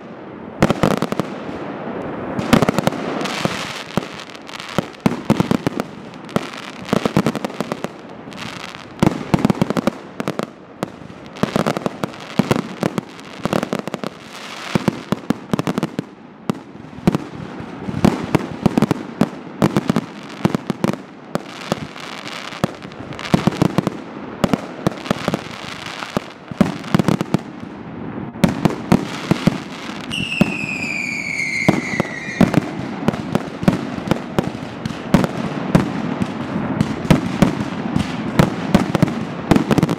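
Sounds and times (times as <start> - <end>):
fireworks bangs and crackling: 0.0 - 39.9
firework whistle falling in pitch: 30.1 - 32.6.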